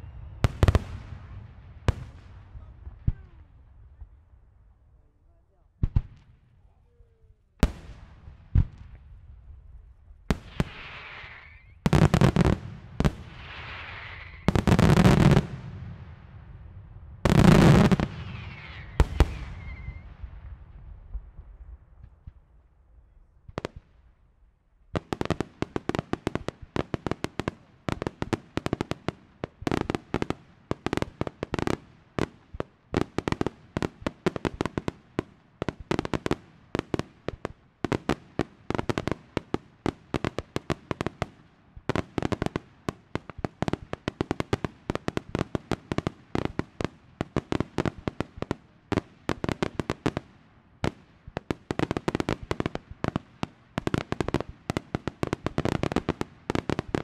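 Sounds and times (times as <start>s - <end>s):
fireworks bangs: 0.0s - 4.1s, 10.3s - 22.5s.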